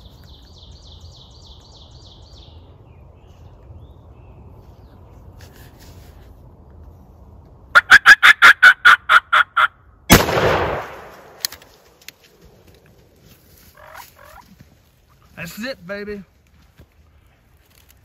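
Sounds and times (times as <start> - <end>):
turkey calling: 7.8 - 9.8, 13.6 - 15.2
shotgun blast: 10.1 - 11.4.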